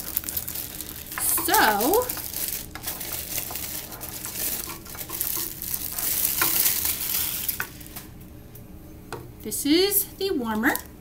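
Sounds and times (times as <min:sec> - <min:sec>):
plastic wrapping crinkling: 0:00.0 - 0:08.1.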